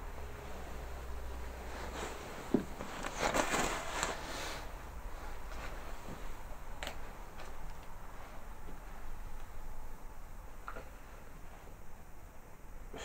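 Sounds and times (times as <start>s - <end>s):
clothing rustle: 0.3s - 9.8s
scraping rustle: 1.6s - 6.4s.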